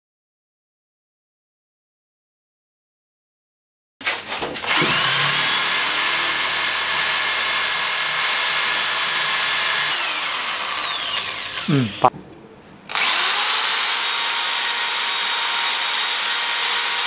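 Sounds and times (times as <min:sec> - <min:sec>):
electric drill boring into wood: 0:04.0 - 0:12.1, 0:12.9 - 0:17.0.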